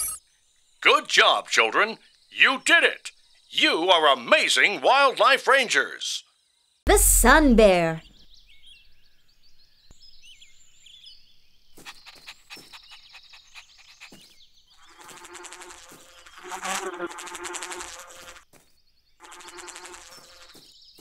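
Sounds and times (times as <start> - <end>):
cartoon bee buzzing: 14.8 - 18.4, 19.2 - 20.7.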